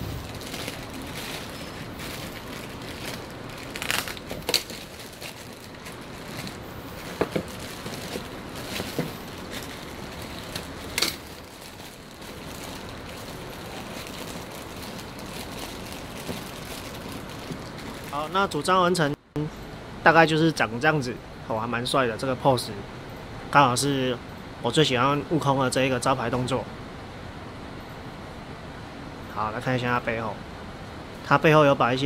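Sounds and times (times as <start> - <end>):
plastic bags crinkling: 0.0 - 18.6
steady background hiss: 0.0 - 32.0.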